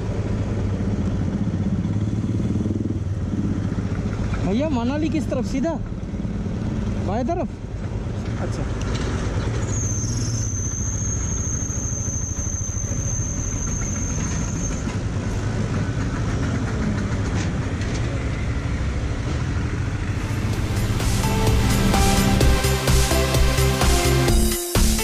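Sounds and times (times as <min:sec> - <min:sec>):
motorcycle engine running: 0:00.0 - 0:08.2, 0:19.6 - 0:24.8
music: 0:20.3 - 0:25.0.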